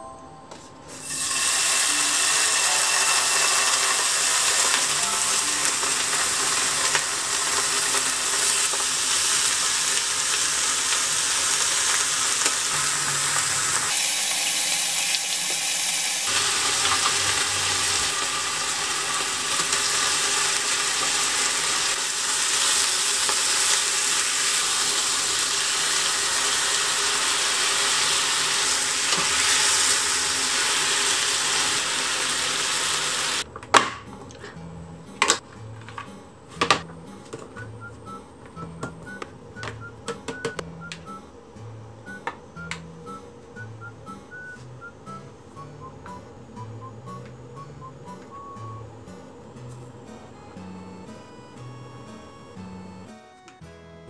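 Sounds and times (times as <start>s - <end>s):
meat frying in oil sizzling: 1.0s - 33.4s.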